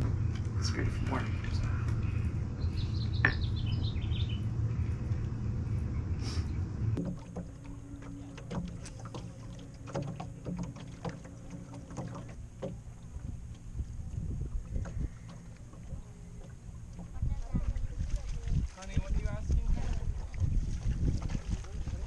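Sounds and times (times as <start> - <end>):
low rumble: 0.0 - 22.0
bird chirps: 1.5 - 4.5
water lapping against boat hull: 6.9 - 22.0.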